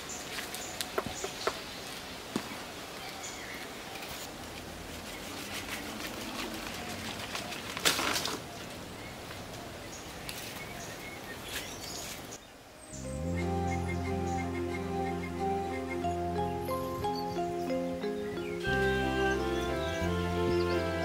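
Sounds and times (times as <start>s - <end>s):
leaves rustling: 0.0s - 14.5s
bird chirps: 12.8s - 21.0s
music: 12.9s - 21.0s.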